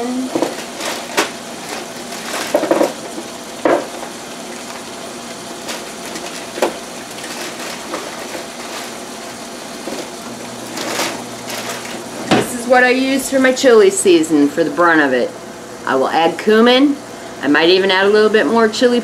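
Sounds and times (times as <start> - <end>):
ground beef sizzling in a pot: 0.0 - 12.3.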